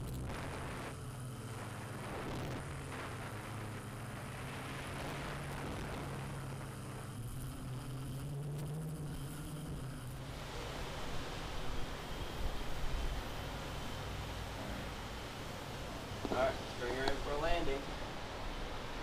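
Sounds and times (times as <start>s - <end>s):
low motor hum: 0.0s - 19.0s
steady hiss: 0.2s - 19.0s.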